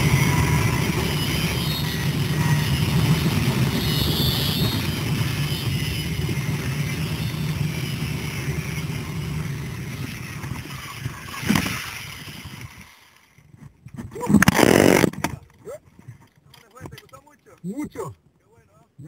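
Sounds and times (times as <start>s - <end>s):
zipline pulleys whirring on cable: 0.0s - 13.5s.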